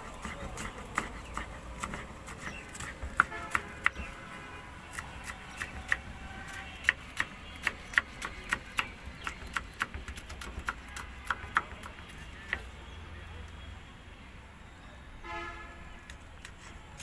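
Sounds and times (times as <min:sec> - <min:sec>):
knife chopping on cutting board: 0:00.1 - 0:04.1.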